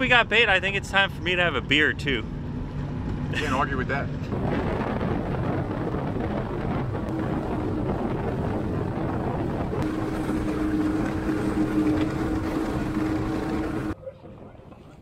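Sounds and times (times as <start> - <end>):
water rushing along hull: 0.0 - 14.0
wind buffeting microphone: 2.4 - 14.0
outboard motor running: 4.2 - 14.0.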